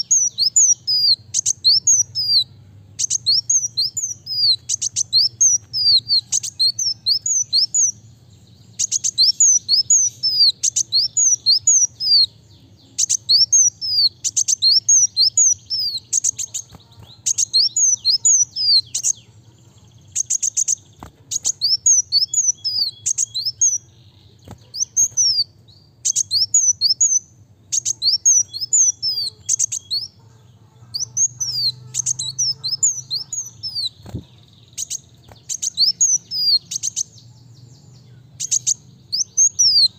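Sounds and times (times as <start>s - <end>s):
sunbird singing high sharp notes: 0.0s - 19.4s, 20.0s - 30.2s, 30.8s - 39.9s.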